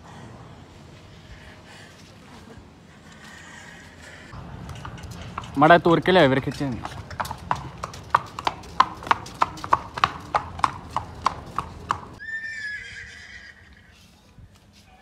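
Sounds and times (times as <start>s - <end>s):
hooves clip-clopping on brick: 4.3s - 12.2s
horse whinny: 12.2s - 13.9s.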